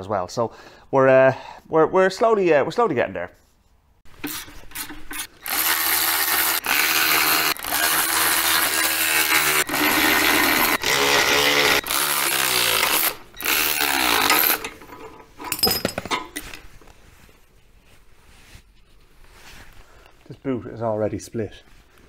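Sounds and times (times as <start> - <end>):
power tool motor bursts: 4.2 - 14.8
clatter of parts handled: 14.2 - 16.8.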